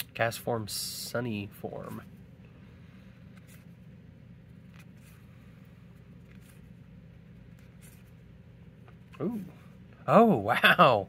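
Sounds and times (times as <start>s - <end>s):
steady low hum: 0.0s - 11.0s
cards sliding over cards: 1.7s - 9.8s.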